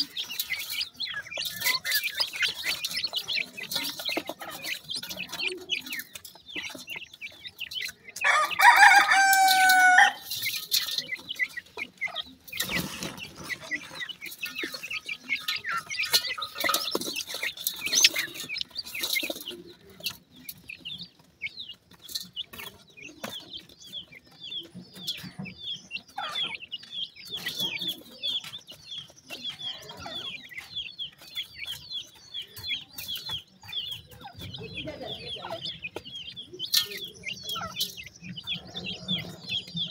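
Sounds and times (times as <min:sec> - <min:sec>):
scratching in dry soil: 0:00.0 - 0:25.4
chicks peeping: 0:00.0 - 0:39.9.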